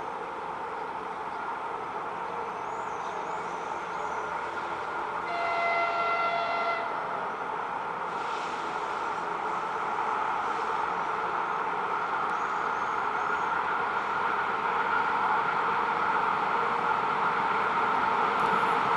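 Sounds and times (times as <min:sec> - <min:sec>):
train wheels rumbling on rail: 0:00.0 - 0:18.9
locomotive horn blast: 0:05.2 - 0:07.1.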